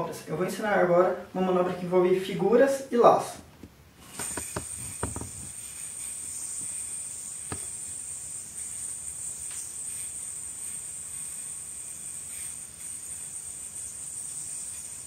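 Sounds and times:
yoyo whirring: 0:04.0 - 0:15.0.

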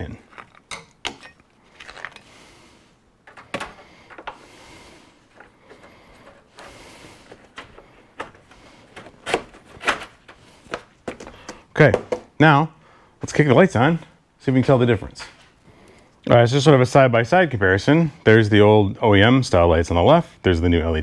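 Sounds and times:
plastic parts clicking and knocking: 0:03.2 - 0:04.4.

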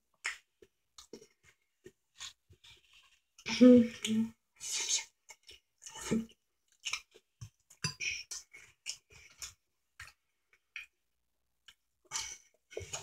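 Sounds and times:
wet chewing smacks: 0:05.3 - 0:11.0.

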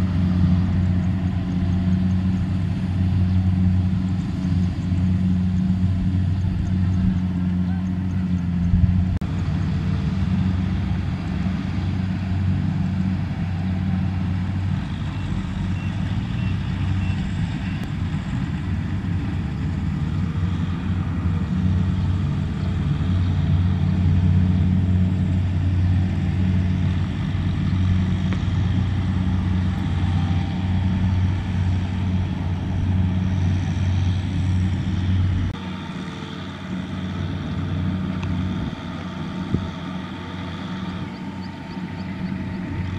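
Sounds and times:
tractor diesel engine under load: 0:00.0 - 0:42.9.

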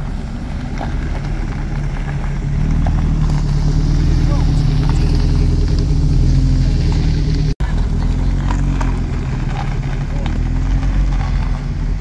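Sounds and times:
car engine at low revs: 0:00.0 - 0:12.0
tyres creeping on gravel: 0:00.0 - 0:12.0.

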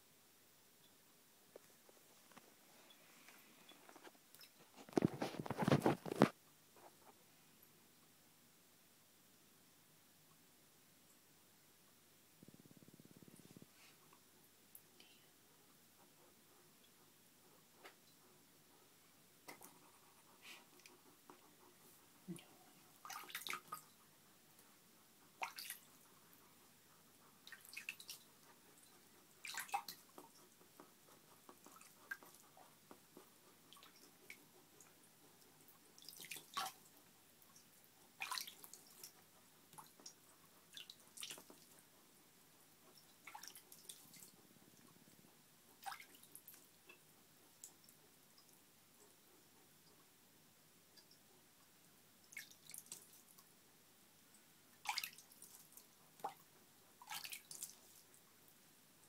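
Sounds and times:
hedgehog sniffing and moving: 0:01.5 - 0:07.2, 0:16.0 - 0:24.5.

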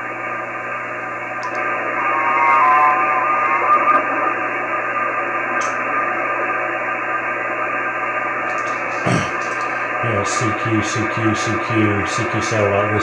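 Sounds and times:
radio receiver hiss: 0:00.0 - 0:13.0
faint whistling tones: 0:01.6 - 0:05.2.

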